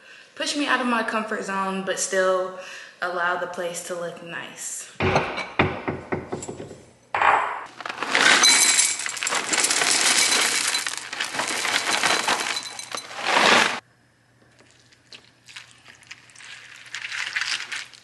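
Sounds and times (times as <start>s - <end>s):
cereal rattling into ceramic bowl: 7.7s - 13.8s, 14.6s - 18.0s
milk pouring: 14.5s - 18.0s.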